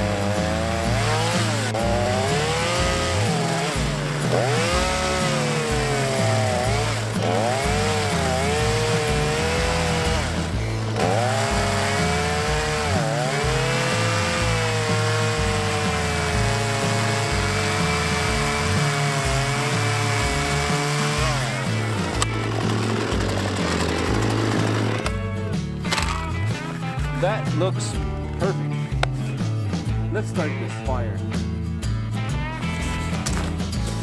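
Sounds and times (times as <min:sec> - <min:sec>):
chainsaw cutting log: 0:00.0 - 0:25.3.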